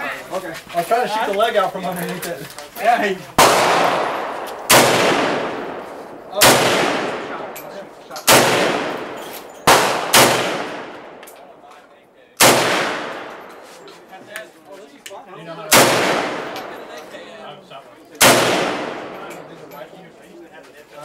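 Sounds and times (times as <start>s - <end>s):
rifle shots with echo: 3.4s - 11.6s, 12.4s - 13.7s, 15.7s - 17.1s, 18.2s - 19.7s.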